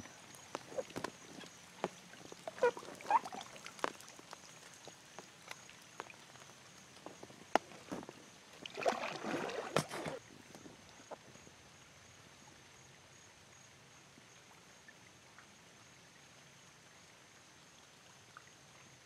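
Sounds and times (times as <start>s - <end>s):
paddle splashing stroke: 0.0s - 10.4s
paddle knocks and drips: 0.0s - 11.2s.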